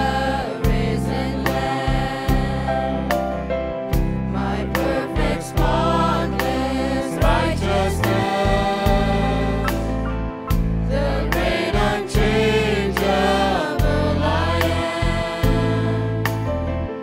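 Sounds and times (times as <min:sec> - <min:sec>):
choir singing a hymn: 0:00.0 - 0:03.3, 0:04.2 - 0:16.6
guitar: 0:00.0 - 0:17.0
keyboard: 0:00.0 - 0:17.0
regular percussive beat: 0:08.6 - 0:10.8.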